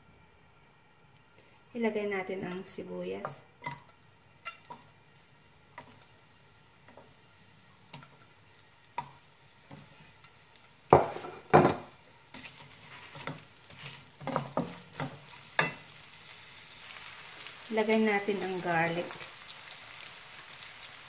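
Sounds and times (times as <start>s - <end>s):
oil sizzling: 2.4s - 21.0s
wooden spatula scraping pan: 11.0s - 15.3s.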